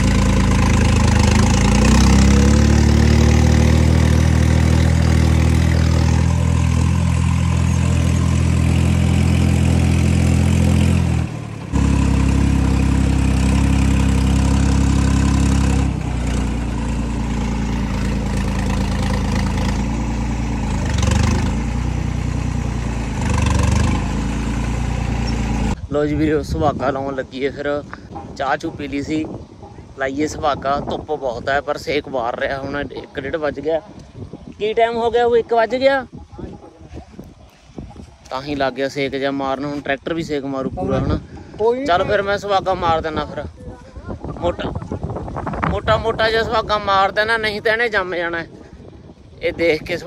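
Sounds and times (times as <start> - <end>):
tractor diesel engine running: 0.0 - 25.9.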